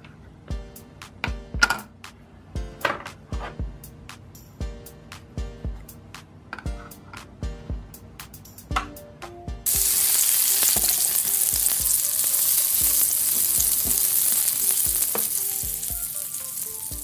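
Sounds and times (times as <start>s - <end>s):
light background music: 0.4s - 17.0s
food sizzling on a grill: 9.7s - 17.0s.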